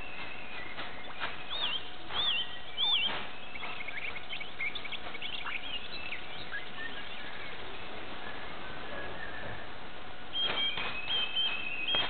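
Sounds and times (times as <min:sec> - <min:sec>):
short high bird chirps: 0:00.0 - 0:06.9, 0:10.3 - 0:12.0
bird warbling whistle: 0:00.0 - 0:07.5, 0:10.3 - 0:12.0.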